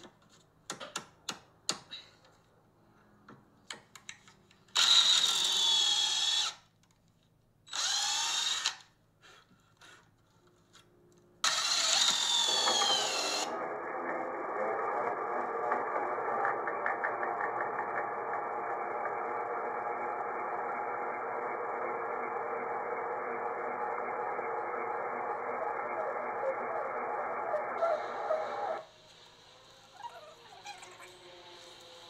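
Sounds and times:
power drill boring into wood: 0:04.8 - 0:06.6, 0:07.7 - 0:08.9, 0:11.4 - 0:24.6.

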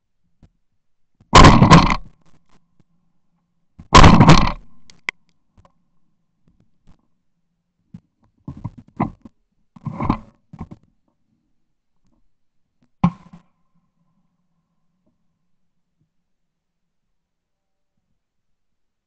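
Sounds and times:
shotgun shot: 0:01.4 - 0:02.0, 0:03.9 - 0:04.7
quieter bangs and knocks: 0:01.4 - 0:02.1, 0:03.9 - 0:04.7
sharp click: 0:04.0 - 0:05.2.

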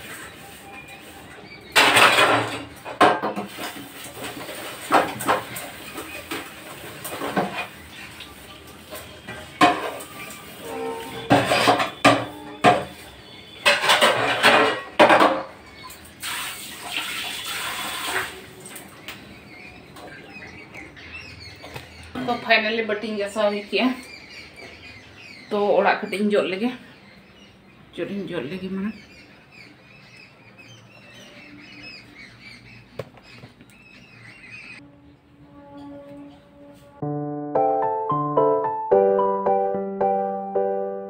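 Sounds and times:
steel dishes clanking in sink: 0:01.8 - 0:07.9, 0:09.0 - 0:15.6.

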